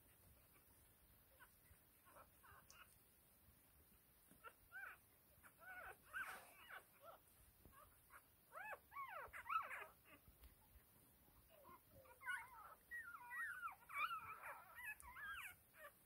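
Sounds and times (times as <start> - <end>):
puppies squeaking and whimpering: 1.4 - 3.0, 4.3 - 10.2, 11.4 - 16.0.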